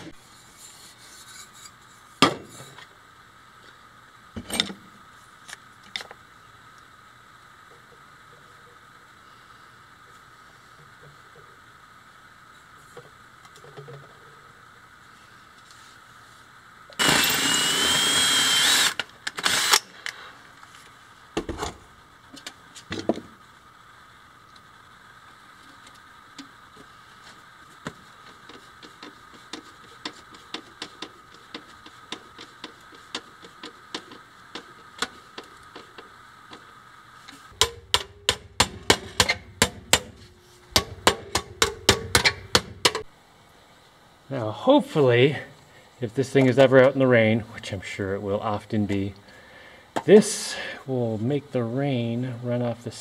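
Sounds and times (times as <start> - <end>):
light scrapes on metal: 0.2 - 2.8
hammer tapping on sheet metal: 37.6 - 43.1.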